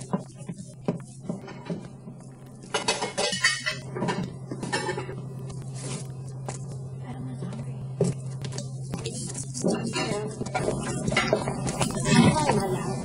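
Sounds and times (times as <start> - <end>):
steady low hum: 0.0 - 13.0
dishes and cutlery clinking: 2.6 - 5.2.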